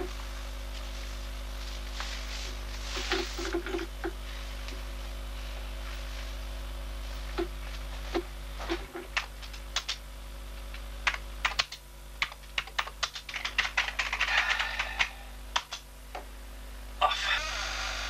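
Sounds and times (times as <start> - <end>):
keyboard typing: 8.1 - 10.0, 10.7 - 15.8.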